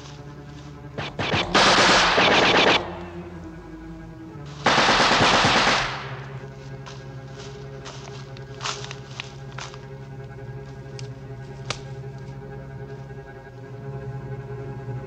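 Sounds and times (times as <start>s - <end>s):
low held music chord: 0.0s - 15.0s
automatic gunfire bursts: 1.0s - 3.4s, 4.6s - 6.5s
single gunshots: 1.0s - 3.4s, 4.7s - 6.4s.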